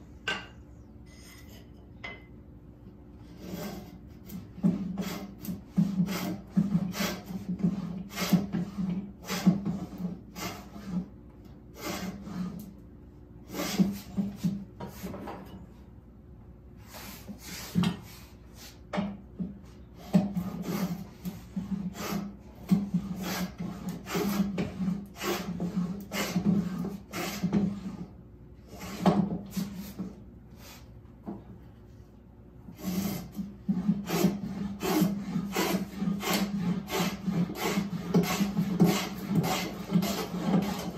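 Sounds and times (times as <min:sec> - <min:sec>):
hand plane rasping strokes: 0:03.3 - 0:11.1, 0:11.7 - 0:12.7, 0:20.0 - 0:30.0, 0:32.8 - 0:40.9.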